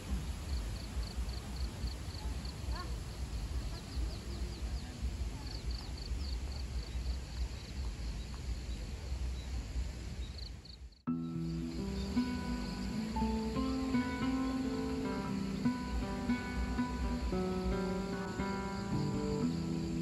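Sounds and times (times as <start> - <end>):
music: 11.1 - 20.0.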